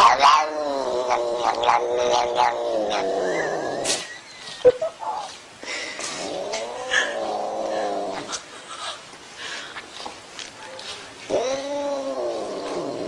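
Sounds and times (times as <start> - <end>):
cat yowling: 11.3 - 12.8.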